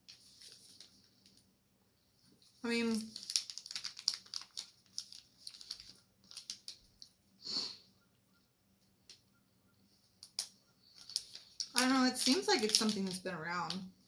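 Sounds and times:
snack wrappers crinkling: 2.4 - 7.2, 10.2 - 13.9.

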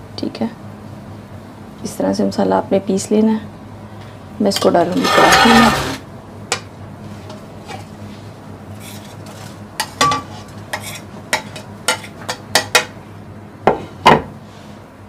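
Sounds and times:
spatula scraping and tapping pot: 8.8 - 12.9.

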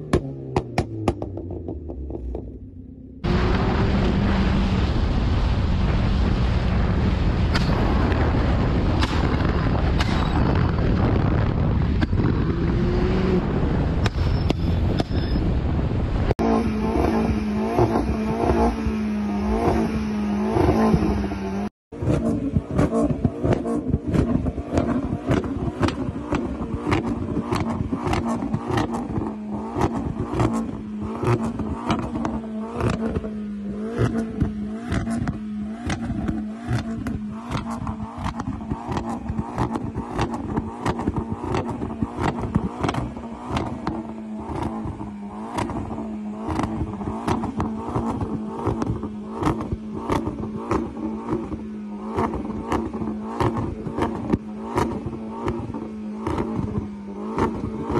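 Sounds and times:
exhaust pops and bangs: 0.0 - 2.6, 5.8 - 12.6, 22.0 - 33.3, 33.9 - 57.9
car engine revving: 0.0 - 15.1, 16.2 - 57.9.

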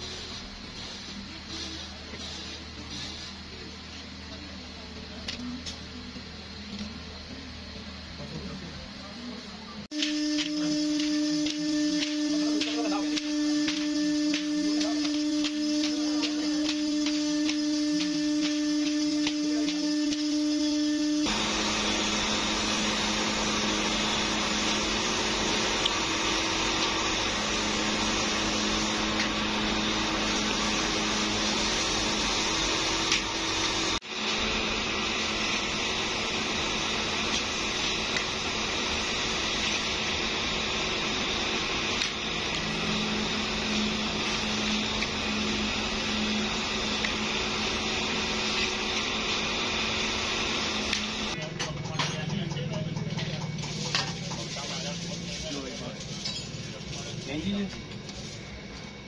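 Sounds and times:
electric motor humming: 9.9 - 51.4.

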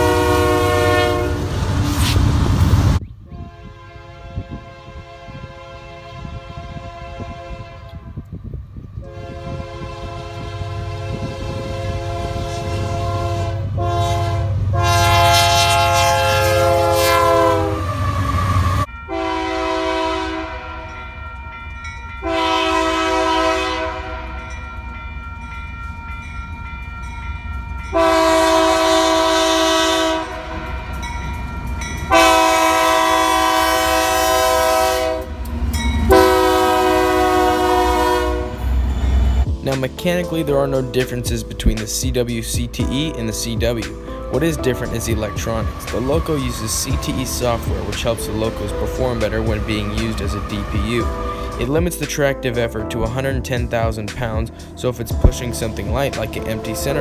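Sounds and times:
train air horn blasts: 0.0 - 2.1, 3.3 - 8.3, 9.0 - 21.6, 22.2 - 24.6, 27.9 - 31.1, 31.9 - 35.4, 36.0 - 39.6, 43.0 - 52.0
freight train rumble: 0.0 - 57.0.

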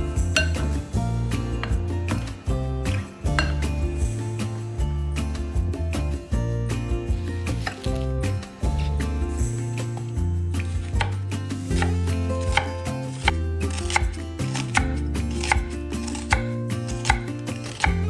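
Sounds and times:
soft background music: 0.0 - 18.0
knife slicing onion on wooden board: 7.1 - 9.2, 9.9 - 18.0.

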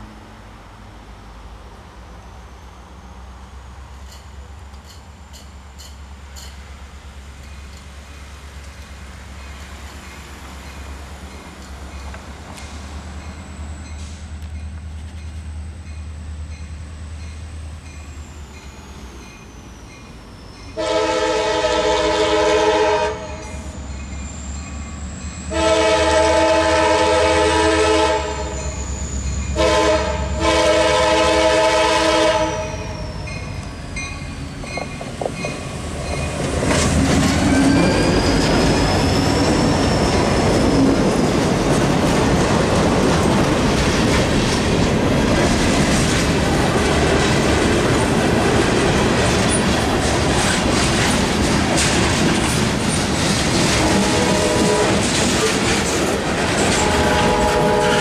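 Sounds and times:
locomotive engine rumble: 0.0 - 58.0
wheels clattering on rails: 3.9 - 20.8, 32.8 - 58.0
crossing warning bell ringing: 3.9 - 42.0, 56.2 - 58.0
locomotive horn: 20.8 - 23.6, 25.5 - 28.8, 29.5 - 33.1, 53.8 - 55.6, 56.6 - 58.0
thin wheel squeal: 28.5 - 29.6, 37.3 - 41.0.

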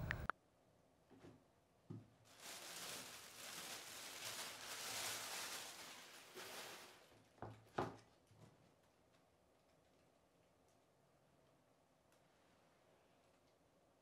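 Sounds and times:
plastic bag crinkling: 2.3 - 8.3.

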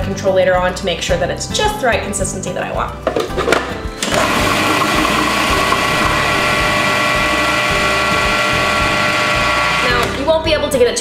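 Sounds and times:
food processor motor whining: 4.0 - 10.2.

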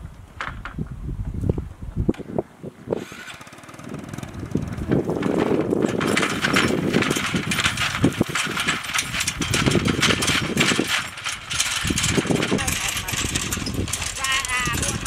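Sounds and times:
tractor engine clattering: 3.0 - 15.0.

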